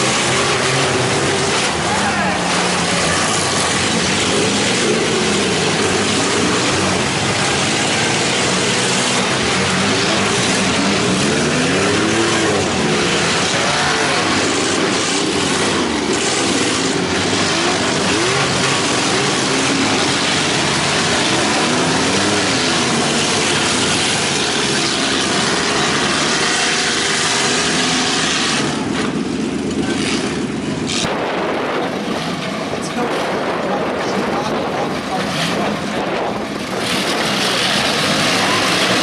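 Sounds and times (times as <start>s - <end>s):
loud din: 0.0s - 24.4s
car engines revving: 0.0s - 39.0s.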